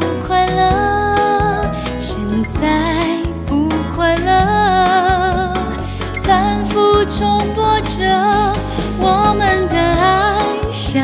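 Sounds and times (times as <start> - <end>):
woman singing with vibrato: 0.0 - 11.0
band with guitar: 8.0 - 10.6.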